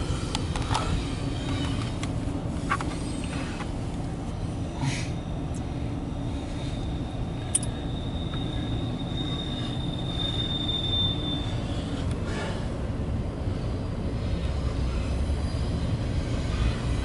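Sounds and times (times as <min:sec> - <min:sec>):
high wheel squeal: 0:00.0 - 0:17.0
train wheels rumbling on rail: 0:00.0 - 0:17.0.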